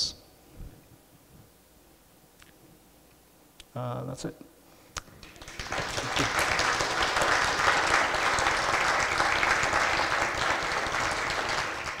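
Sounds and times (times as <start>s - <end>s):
audience applauding: 5.1s - 12.0s.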